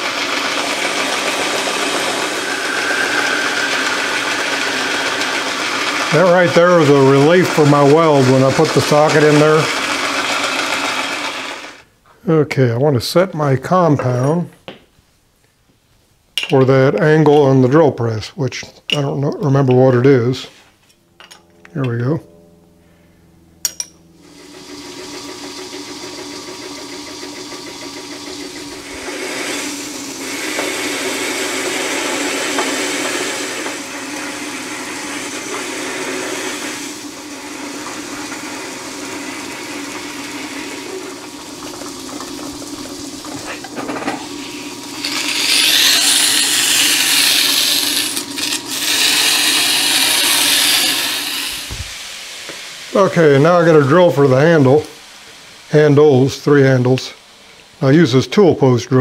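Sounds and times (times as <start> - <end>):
abrasive cloth sanding: 0.0 - 11.6, 28.5 - 41.1, 44.4 - 51.9
cutting tool cutting metal: 0.0 - 11.8, 23.7 - 41.0, 43.6 - 51.8
metal lathe running: 0.0 - 11.8, 23.6 - 51.8.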